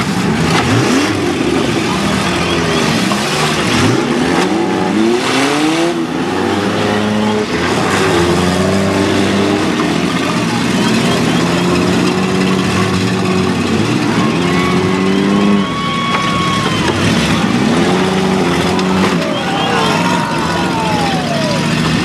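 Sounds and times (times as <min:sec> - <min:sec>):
small car engines revving: 0:00.0 - 0:22.0
cars crashing into each other: 0:07.4 - 0:22.0.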